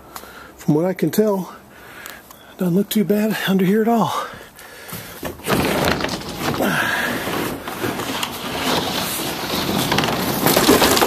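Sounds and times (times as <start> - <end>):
knocks and rustling: 4.9 - 11.0
plastic bed liner scraping: 4.9 - 11.0.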